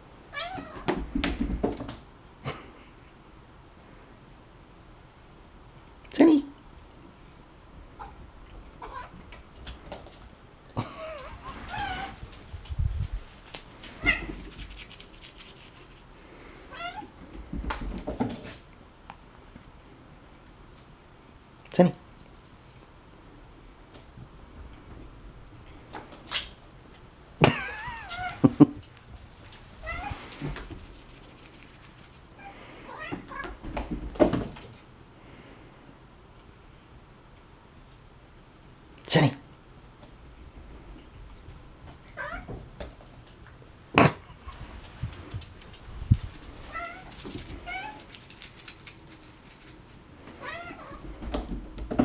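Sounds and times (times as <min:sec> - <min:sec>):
cat meowing: 0:00.3 - 0:00.9, 0:08.8 - 0:09.2, 0:11.2 - 0:12.2, 0:14.0 - 0:14.4, 0:16.7 - 0:17.1, 0:27.6 - 0:28.5, 0:29.8 - 0:30.3, 0:42.2 - 0:42.5, 0:46.7 - 0:48.0, 0:50.4 - 0:51.0
knocks and thumps: 0:00.6 - 0:02.0.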